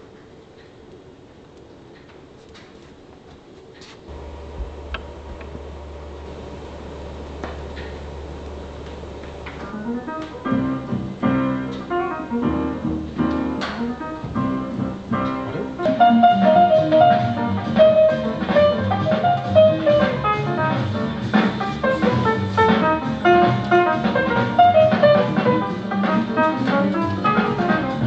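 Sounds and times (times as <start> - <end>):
jazz music with guitar and drums: 9.5 - 28.0.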